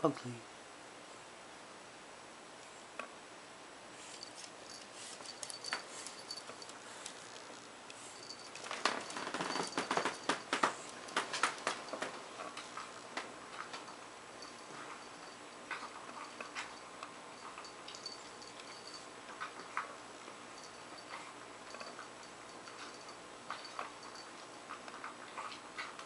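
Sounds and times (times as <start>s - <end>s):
claws clicking on laminate floor: 5.2s - 13.9s
kibble rattling in metal bowl: 8.3s - 16.8s.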